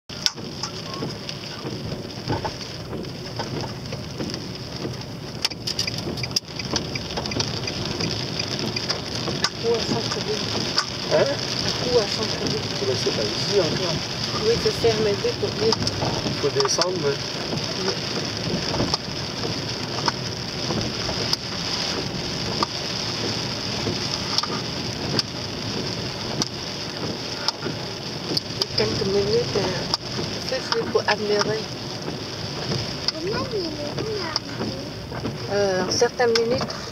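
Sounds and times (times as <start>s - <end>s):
road and engine hum: 0.0s - 36.9s
rain tapping on car: 0.1s - 36.9s
sharp ticks: 5.4s - 9.6s.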